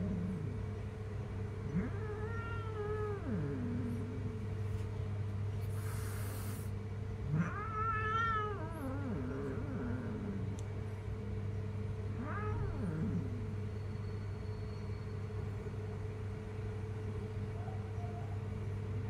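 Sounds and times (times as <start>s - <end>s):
steady low hum: 0.0s - 19.0s
cat meowing: 1.7s - 4.2s, 7.3s - 10.4s, 12.2s - 13.4s.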